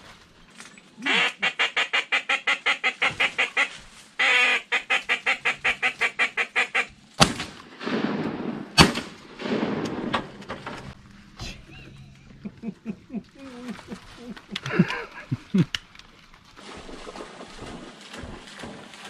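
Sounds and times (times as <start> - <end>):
duck call quacks: 1.0 - 6.9
shotgun shots: 7.2 - 10.6.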